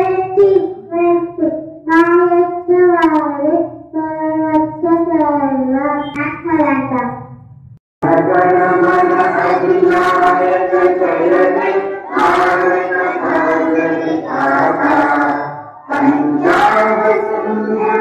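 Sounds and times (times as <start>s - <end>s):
children singing in unison: 8.0s - 18.0s.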